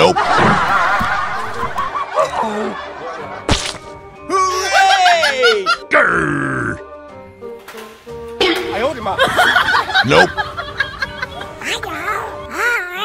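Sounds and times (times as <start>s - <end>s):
people laughing: 0.0s - 3.5s, 4.3s - 5.9s, 8.4s - 11.6s
background music: 0.0s - 13.0s.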